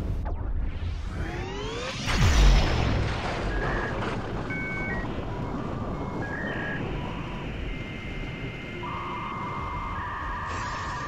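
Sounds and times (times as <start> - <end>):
synthetic beeps: 3.4 - 11.0.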